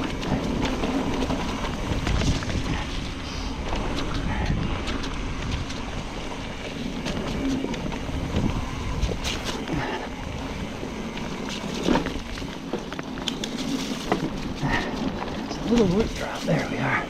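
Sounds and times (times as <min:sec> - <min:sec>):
bike rattles and knocks: 0:00.0 - 0:17.0
bike tyre noise: 0:00.0 - 0:17.0
wind rumbling on microphone: 0:00.0 - 0:17.0.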